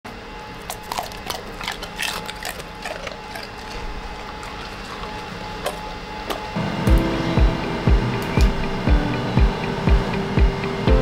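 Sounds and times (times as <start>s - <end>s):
dog crunching a chip: 0.5s - 5.8s.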